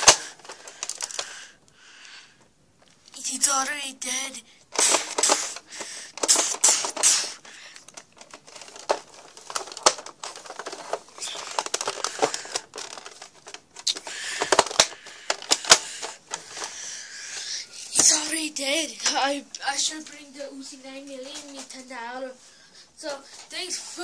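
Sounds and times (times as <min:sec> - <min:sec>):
plastic toy gun clicking: 0:00.0 - 0:01.3, 0:04.8 - 0:16.7.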